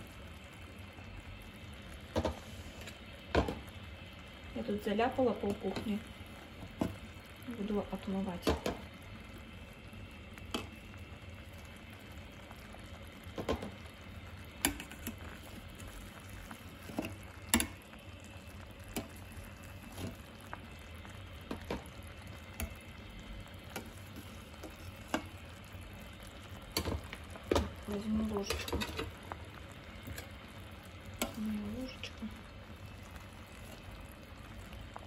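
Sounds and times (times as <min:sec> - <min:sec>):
jam bubbling in a pot: 0:00.0 - 0:35.0
metal skimmer clicking against pot: 0:14.6 - 0:15.2, 0:17.0 - 0:17.8.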